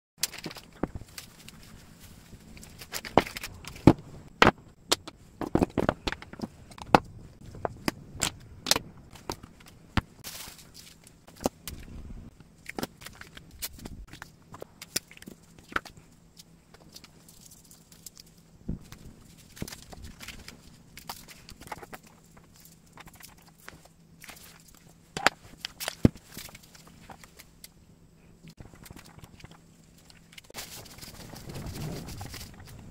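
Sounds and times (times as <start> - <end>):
plastic and paper rustling: 0.2 - 4.3, 16.7 - 27.6, 28.5 - 32.9.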